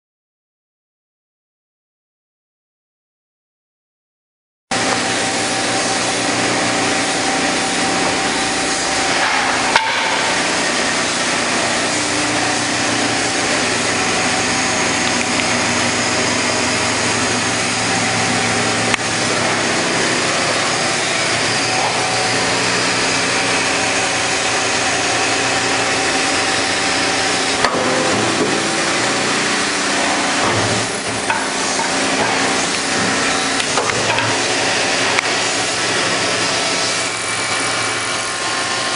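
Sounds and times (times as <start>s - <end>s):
wood lathe humming drone: 4.7s - 38.9s
sharp knocks: 9.2s - 10.5s.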